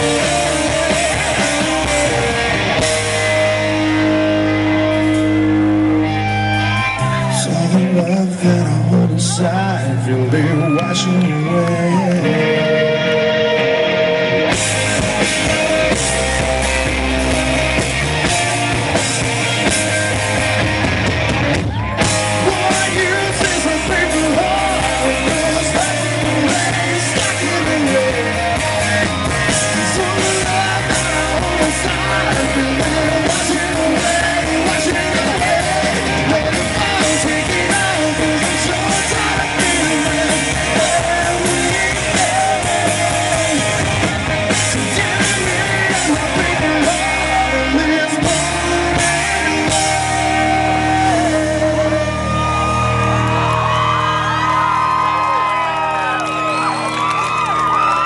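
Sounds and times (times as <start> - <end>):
man singing: 0.0 - 3.2, 7.0 - 13.7, 22.2 - 52.8
live rock band playing: 0.0 - 58.0.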